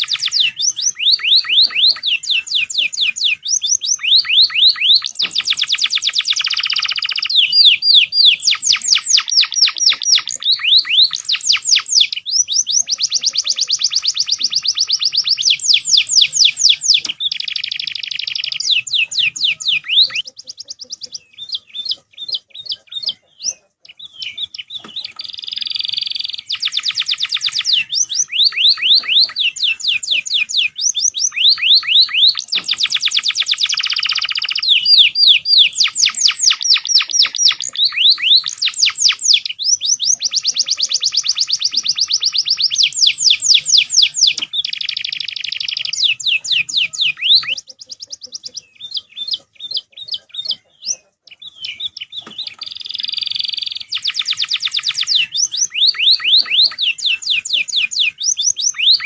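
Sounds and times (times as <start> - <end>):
bird chirps and trills: 0.0 - 59.0
canary singing: 0.0 - 59.0.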